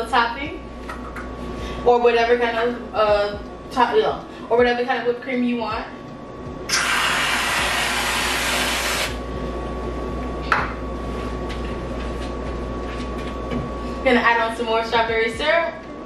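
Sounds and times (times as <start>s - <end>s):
aerosol can spraying: 6.7s - 9.2s.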